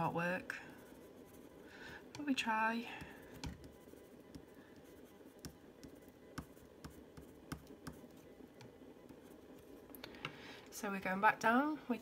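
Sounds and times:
pencil rubbing on paper: 3.6 - 7.3.

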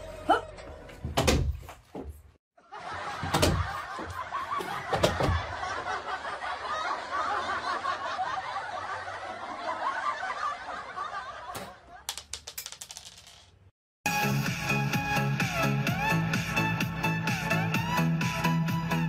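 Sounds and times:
people laughing: 2.6 - 12.1.

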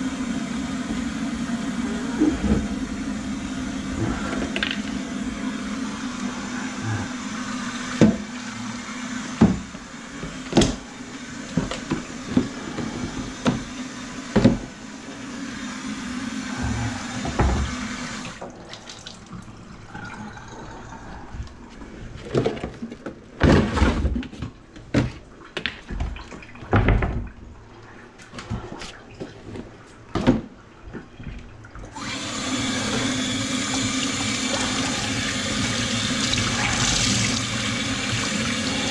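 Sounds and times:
faucet running into steel sink: 31.9 - 38.9.

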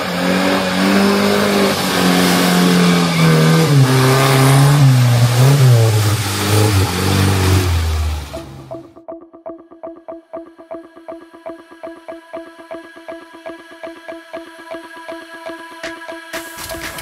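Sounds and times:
engine revving in mud: 0.0 - 8.8.

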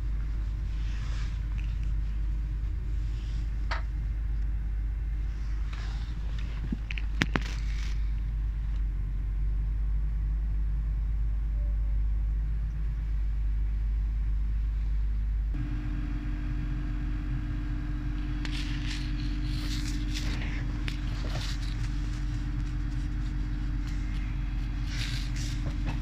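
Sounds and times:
rustling: 5.3 - 8.4, 17.1 - 26.0
steady hum: 12.4 - 26.0
train interior rumble: 15.5 - 26.0.

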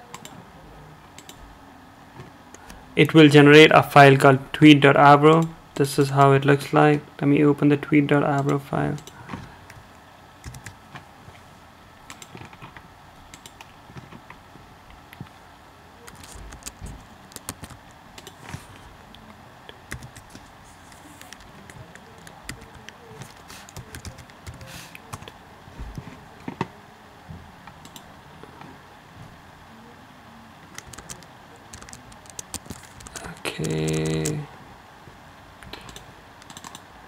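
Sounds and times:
keyboard and mouse clicking: 0.1 - 0.4, 1.2 - 1.4, 8.4 - 9.8, 10.4 - 10.8, 12.1 - 14.3, 16.1 - 19.3, 19.9 - 25.4, 27.8 - 28.1, 30.7 - 34.4, 35.6 - 36.8.

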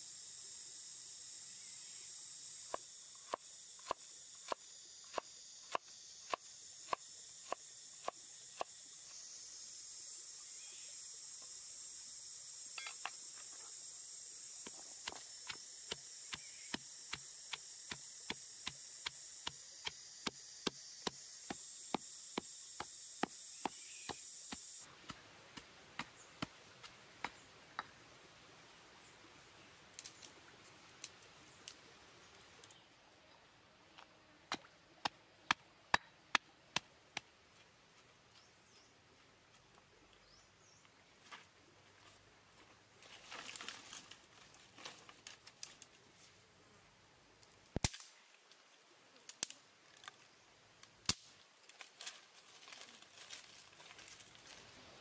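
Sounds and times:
insects droning: 0.0 - 39.3.

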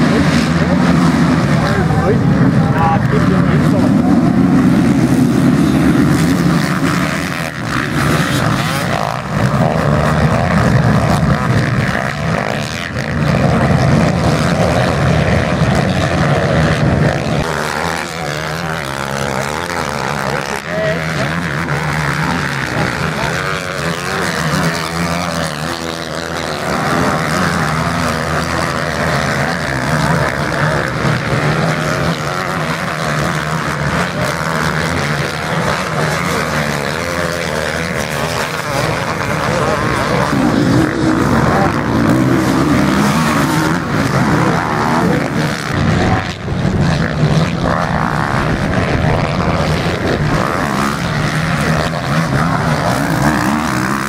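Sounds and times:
motocross bike engines revving: 0.0 - 54.0.

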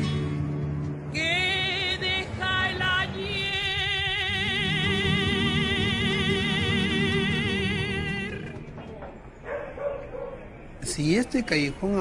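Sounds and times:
guitar accompaniment: 0.0 - 9.0
person singing: 1.2 - 8.6.

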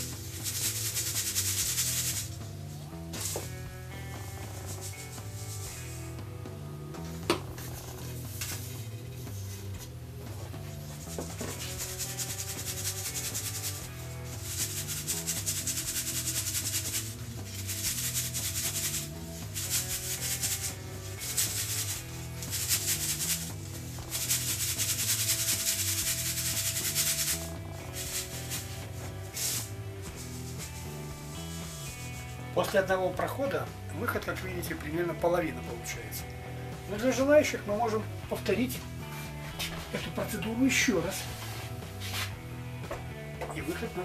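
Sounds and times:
flour rasping in metal sieve: 0.0 - 2.6, 4.3 - 5.9, 10.7 - 33.4
soft background music: 0.0 - 44.0.

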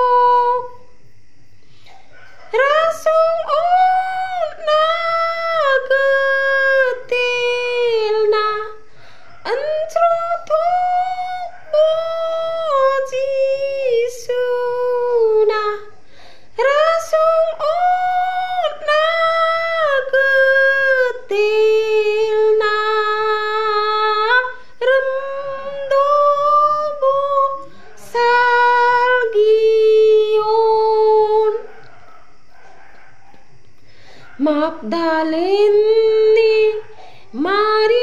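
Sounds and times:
woman singing a hymn: 0.0 - 1.0, 2.4 - 31.7, 34.3 - 38.0.

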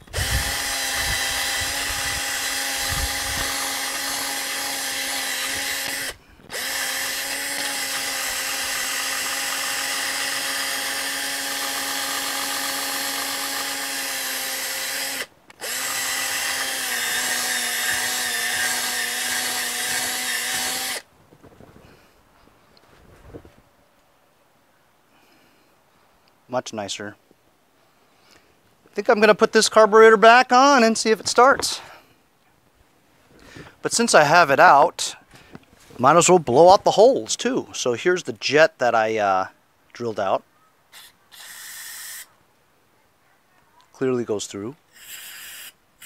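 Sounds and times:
cordless drill motor whine: 0.0 - 21.1.

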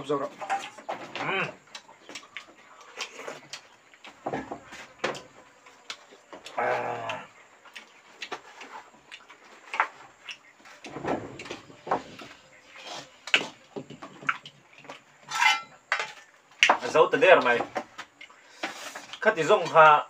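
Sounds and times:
chewing and mouth noises: 1.7 - 4.2, 5.5 - 11.6, 12.2 - 15.2.

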